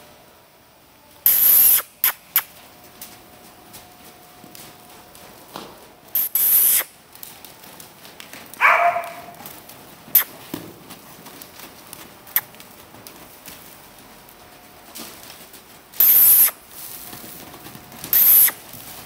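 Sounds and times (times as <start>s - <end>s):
horse blowing: 6.2s - 6.9s, 10.1s - 10.5s, 16.0s - 17.0s, 18.1s - 18.8s
horse calling: 6.2s - 6.9s, 10.1s - 10.5s, 16.0s - 16.7s, 18.1s - 18.7s.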